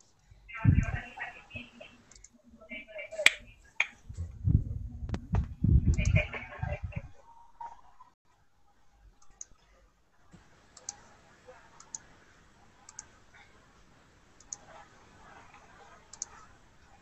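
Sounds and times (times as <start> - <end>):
faint computer mouse clicks: 11.8 - 12.0, 16.1 - 16.4.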